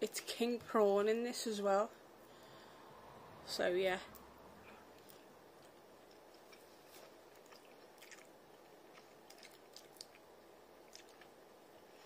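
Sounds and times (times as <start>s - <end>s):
faint chewing: 4.1s - 12.0s.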